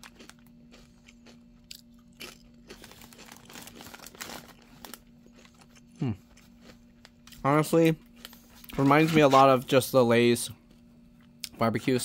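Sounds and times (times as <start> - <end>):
person chewing potato chips: 0.0 - 9.5.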